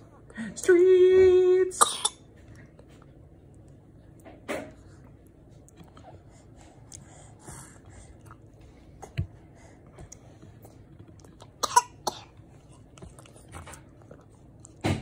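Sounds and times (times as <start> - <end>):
baby chewing and mouth sounds: 2.2 - 15.0
baby breathing: 6.0 - 10.2.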